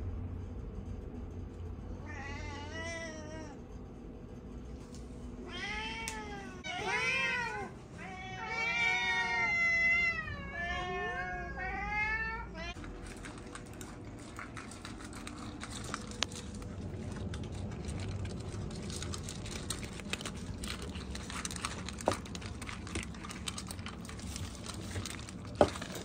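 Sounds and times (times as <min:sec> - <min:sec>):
cats meowing: 0:05.4 - 0:12.8.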